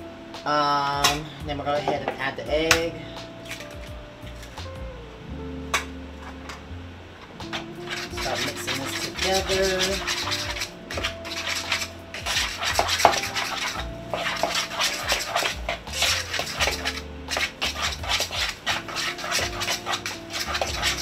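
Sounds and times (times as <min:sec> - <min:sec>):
metal utensil scraping plastic bowl: 0:07.4 - 0:21.0.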